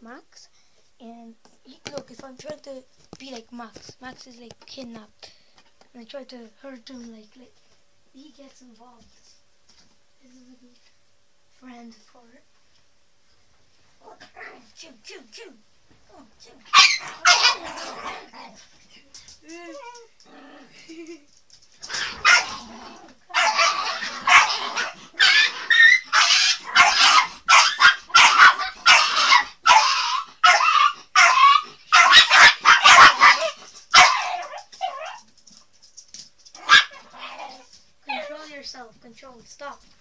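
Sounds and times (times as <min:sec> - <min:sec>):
dog whining: 0:16.1 - 0:18.3, 0:19.6 - 0:20.2, 0:23.3 - 0:35.3
small dog barking: 0:16.6 - 0:18.5, 0:21.9 - 0:22.7, 0:23.3 - 0:35.2, 0:36.6 - 0:38.3.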